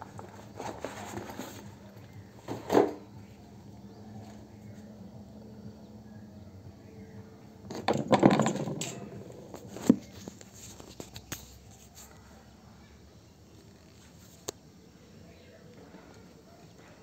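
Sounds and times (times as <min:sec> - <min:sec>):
racket clattering on tiles: 0:07.7 - 0:11.4.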